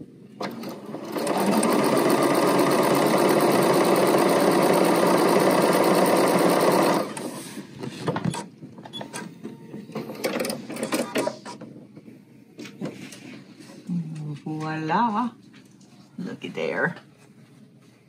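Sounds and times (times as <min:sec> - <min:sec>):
sewing machine whirring: 0:00.4 - 0:07.4.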